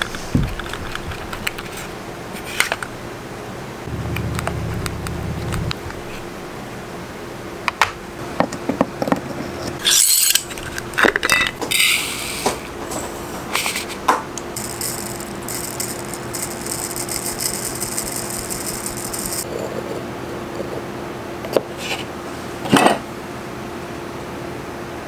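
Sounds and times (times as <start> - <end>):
steady low hum: 0.0 - 8.4, 9.5 - 22.6
tools rattling and scraping: 9.4 - 19.7
powder grains trickling into metal lid: 14.4 - 19.4.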